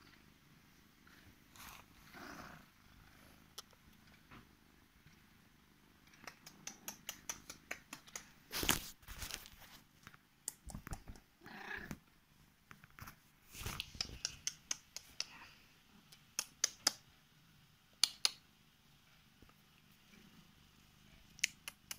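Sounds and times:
cat purring: 0.0 - 8.5, 10.6 - 12.4
loud rustle against phone: 8.5 - 9.9.

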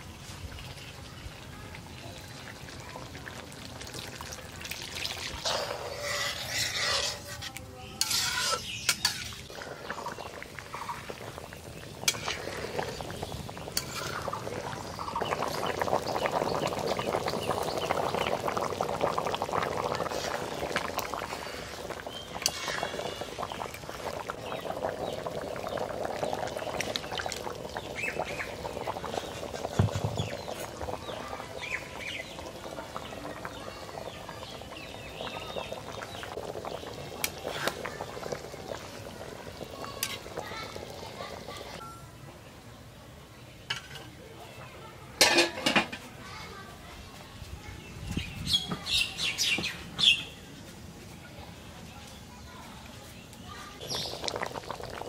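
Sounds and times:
curry frying in a pan: 0.0 - 41.8, 53.1 - 55.0
liquid pouring: 2.0 - 7.2, 53.8 - 55.0
utensil stirring and scraping pan: 5.3 - 10.0, 12.0 - 14.4, 21.3 - 23.3.

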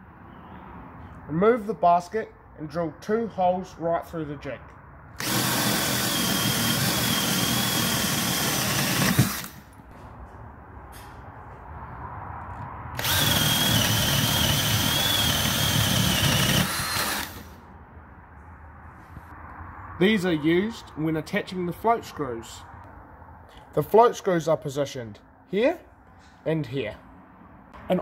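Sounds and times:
cordless drill boring through wood: 5.2 - 9.6, 13.0 - 17.6.

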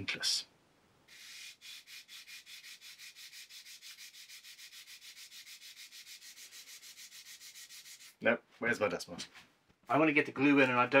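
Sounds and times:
sandpaper scratching: 1.1 - 8.2.

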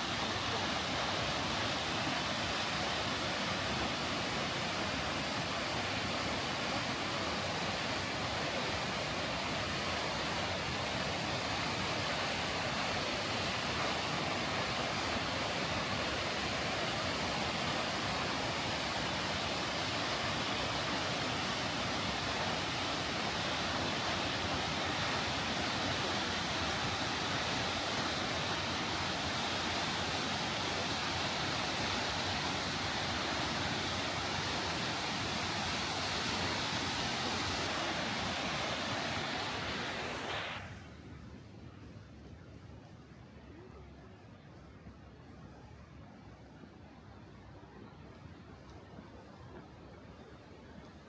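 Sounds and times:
waterfall rushing: 0.0 - 40.8.

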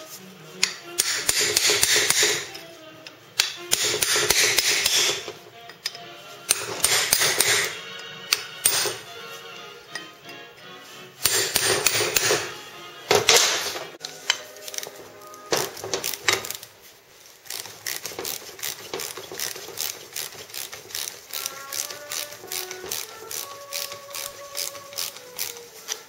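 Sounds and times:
background music: 0.0 - 26.0
hammer striking chisel: 0.6 - 2.6, 3.4 - 9.1, 11.2 - 12.5, 13.1 - 14.5.

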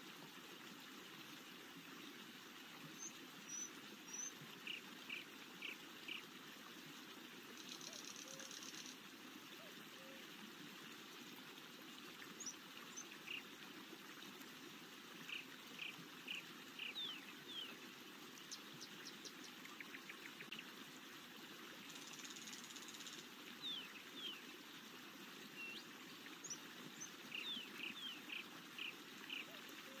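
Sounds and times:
running water rushing: 0.0 - 30.0
songbirds chirping: 15.2 - 20.7, 25.4 - 30.0.

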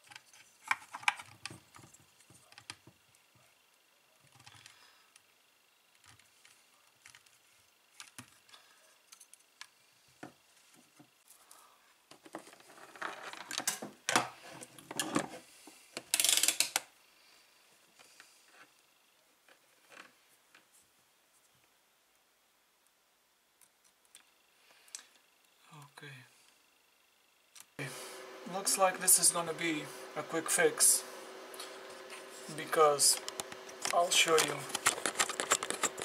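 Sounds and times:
hands handling cables and metal parts: 0.0 - 3.0, 6.0 - 11.4, 31.5 - 36.0.

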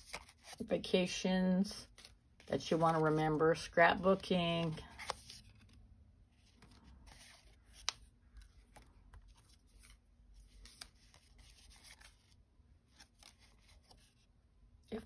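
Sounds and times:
cardstock rustling and clicking: 0.0 - 0.6, 1.9 - 3.6, 4.2 - 5.8.

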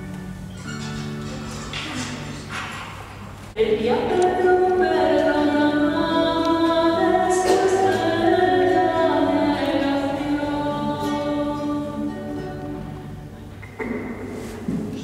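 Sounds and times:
choir singing long held notes: 3.6 - 13.3.

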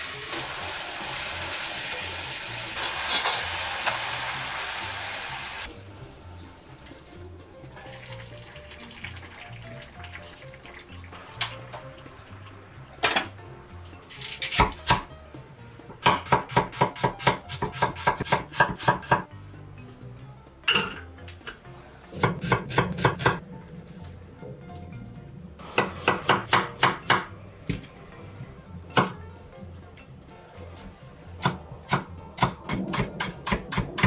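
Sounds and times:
pots and lids clattering: 2.8 - 4.0, 13.0 - 13.4, 20.6 - 21.6
knife chopping on wooden board: 16.0 - 19.2.

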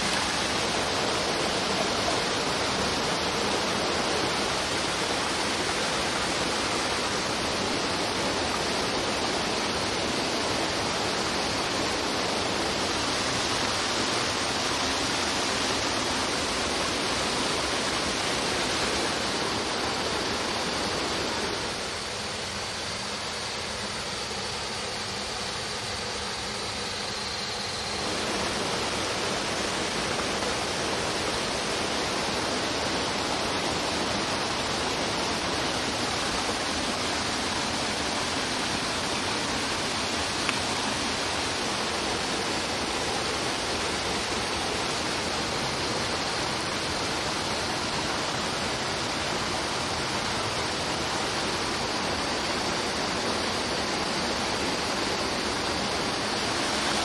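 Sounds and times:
waterfall and stream rushing: 0.0 - 57.0.

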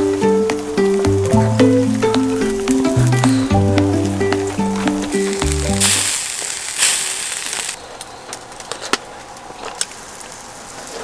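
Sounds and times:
background music with held notes: 0.0 - 6.0
meat sizzling on a grill: 0.1 - 7.8, 9.6 - 11.0.

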